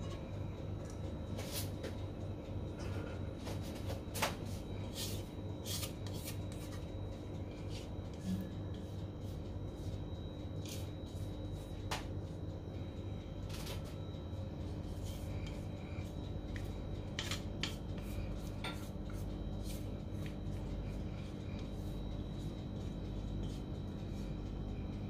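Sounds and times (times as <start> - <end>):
spatula scraping metal bowl: 4.9 - 6.8, 17.2 - 19.9
low hum: 6.5 - 25.0.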